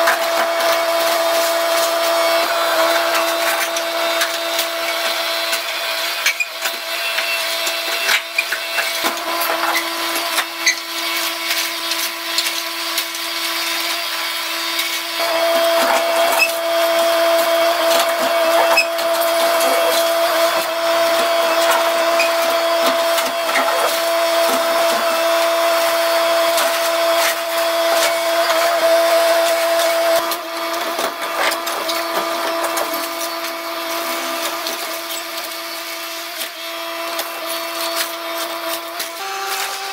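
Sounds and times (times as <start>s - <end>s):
hydraulic whine: 0.0s - 39.9s.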